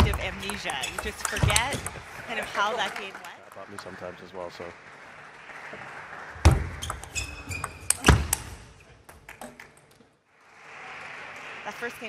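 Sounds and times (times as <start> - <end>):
table tennis ball clicking: 0.0 - 2.0.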